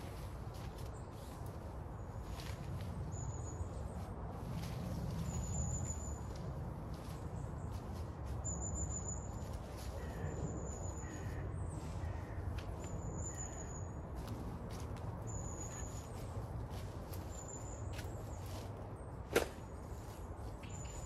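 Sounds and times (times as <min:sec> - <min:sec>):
footsteps in fallen leaves: 0:00.0 - 0:19.0, 0:19.7 - 0:21.0
bird calling: 0:08.9 - 0:13.9.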